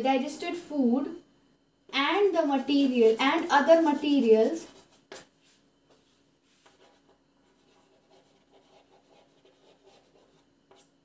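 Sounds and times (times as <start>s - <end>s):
pen scratching on paper: 6.6s - 11.0s.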